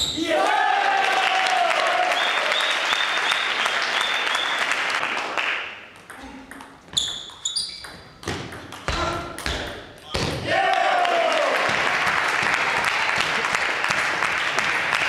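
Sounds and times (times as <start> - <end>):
spectators clapping: 0.3 - 6.0, 10.5 - 15.0.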